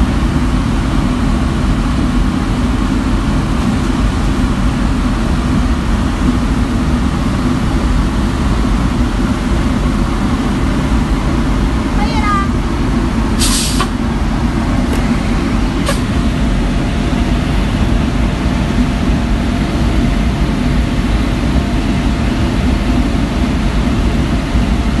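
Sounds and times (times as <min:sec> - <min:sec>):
truck engine and vacuum drone: 0:00.0 - 0:25.0
short hiss: 0:13.4 - 0:13.9.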